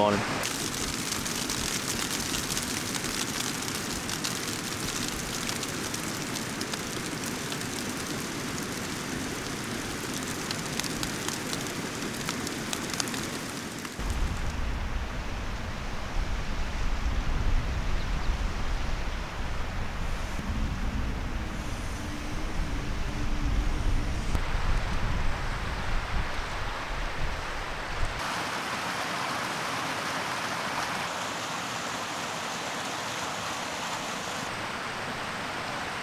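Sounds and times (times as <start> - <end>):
wind buffeting microphone: 14.0 - 28.2.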